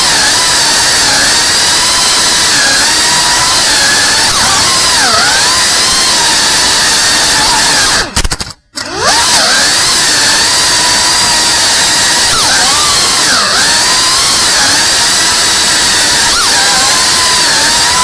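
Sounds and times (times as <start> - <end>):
drone propellers whining: 0.0 - 8.2, 8.8 - 18.0.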